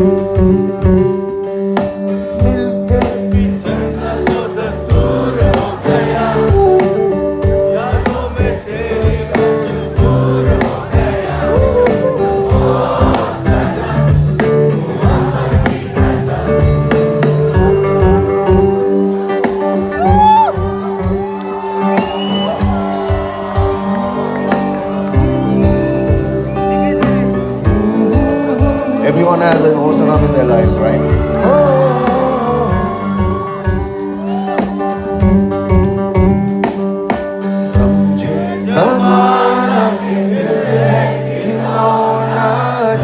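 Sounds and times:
bass: 0.0s - 19.0s, 20.0s - 36.8s
drum beat: 0.0s - 38.2s
acoustic guitar: 0.0s - 43.0s
man singing: 2.2s - 18.9s, 27.0s - 33.7s, 37.4s - 43.0s.

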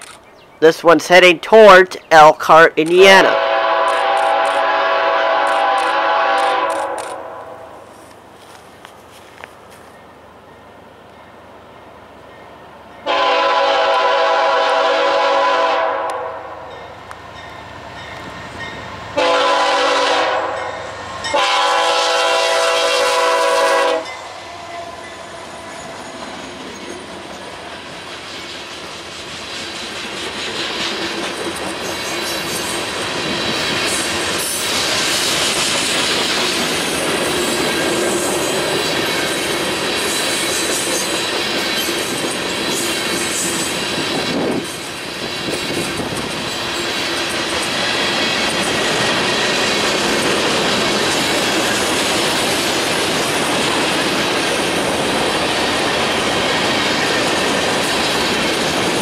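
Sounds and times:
locomotive air horn: 3.2s - 7.7s, 13.0s - 16.7s, 19.2s - 25.0s
train wheels rumbling and clicking: 3.8s - 4.8s, 5.4s - 7.2s, 24.7s - 59.0s.

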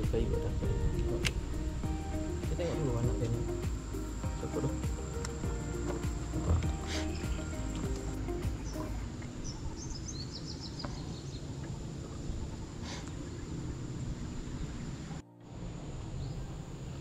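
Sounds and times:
low rumbling noise: 0.0s - 10.4s
bird chirping: 0.0s - 17.0s
high insect drone: 0.0s - 17.0s.

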